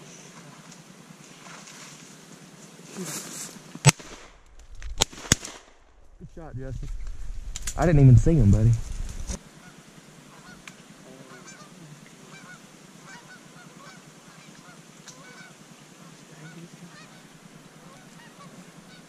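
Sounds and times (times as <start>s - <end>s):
distant geese honking: 6.4s - 19.0s.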